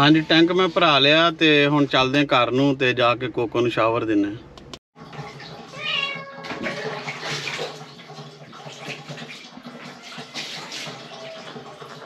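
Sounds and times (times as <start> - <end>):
shower water running and splashing: 5.0 - 12.0.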